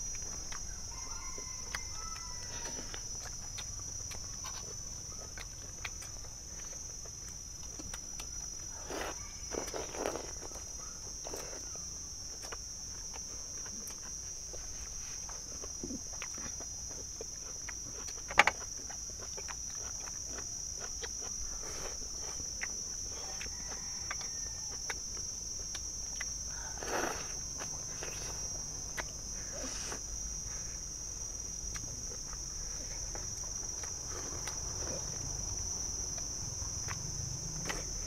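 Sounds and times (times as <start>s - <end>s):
eating noises: 0.0s - 38.0s
insects chirring: 0.0s - 38.0s.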